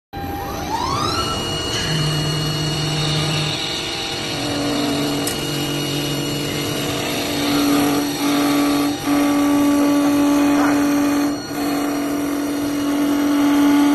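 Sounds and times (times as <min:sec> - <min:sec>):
lathe motor hum and whine: 0:00.2 - 0:13.9
cutter shaving wood: 0:03.1 - 0:13.9.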